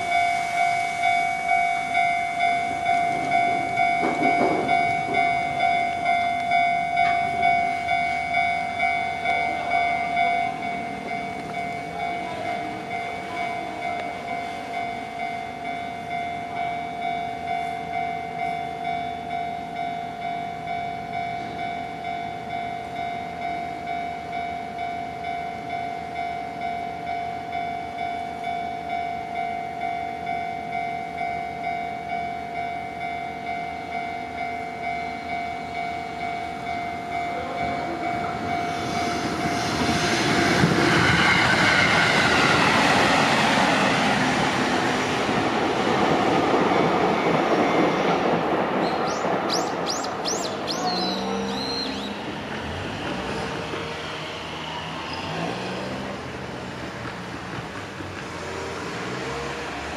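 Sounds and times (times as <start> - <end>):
level-crossing bell ringing: 0.0 - 39.3
electric train rumble and clatter: 0.0 - 59.9.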